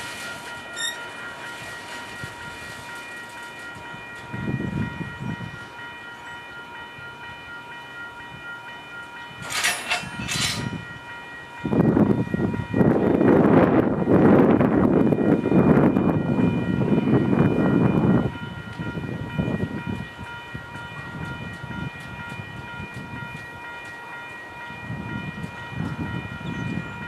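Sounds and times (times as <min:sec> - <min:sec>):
high-pitched ringing tone: 0:00.2 - 0:12.9
freight cars rolling on track: 0:09.4 - 0:10.8.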